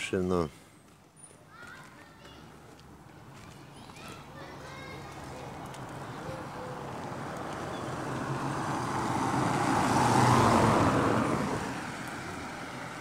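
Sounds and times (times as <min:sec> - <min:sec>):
car driving past: 0:06.0 - 0:13.0.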